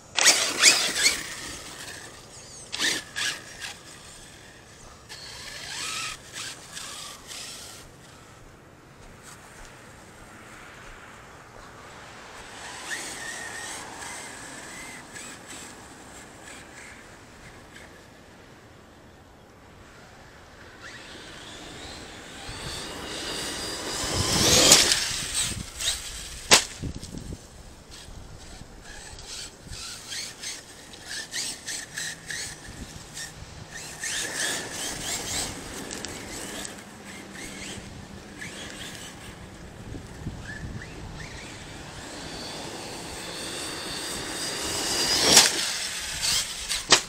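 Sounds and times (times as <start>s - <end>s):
electric motor whining: 0.0s - 8.2s, 20.8s - 47.0s.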